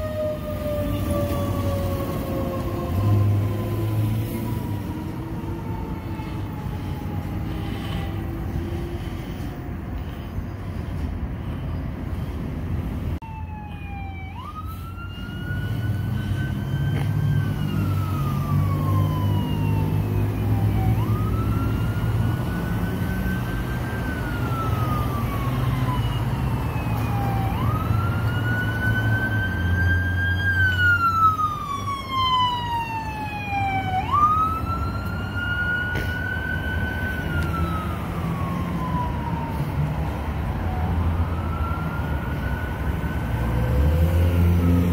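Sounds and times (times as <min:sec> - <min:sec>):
fire truck siren wailing: 0:00.0 - 0:10.2, 0:13.2 - 0:44.9
heavy engine rumble: 0:04.3 - 0:13.2.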